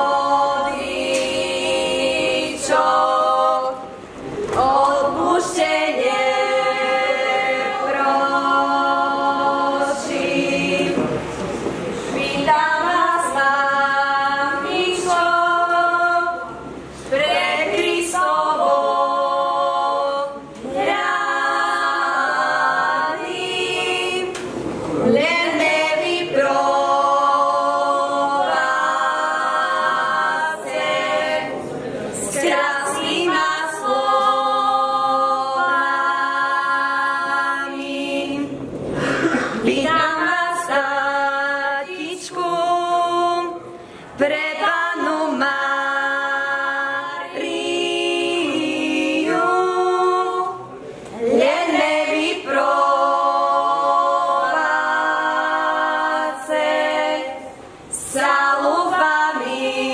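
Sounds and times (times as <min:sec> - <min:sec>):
women singing unaccompanied: 0:00.0 - 0:11.4, 0:12.0 - 0:59.9.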